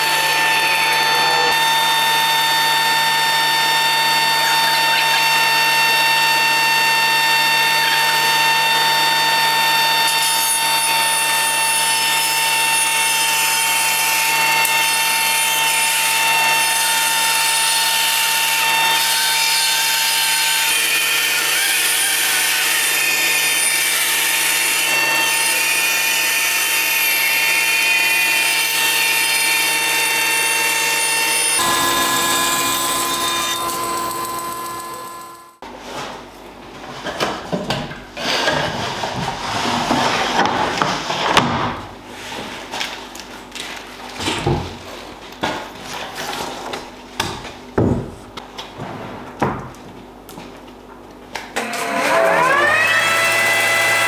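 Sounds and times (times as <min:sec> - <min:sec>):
bandsaw motor whine: 0:00.0 - 0:35.6, 0:51.6 - 0:54.0
saw blade rasping through wood: 0:00.0 - 0:35.6.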